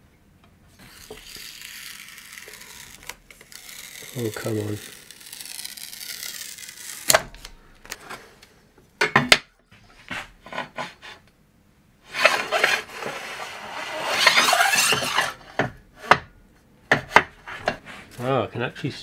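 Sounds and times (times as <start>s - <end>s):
steel rule scraping metal: 12.1s - 15.7s.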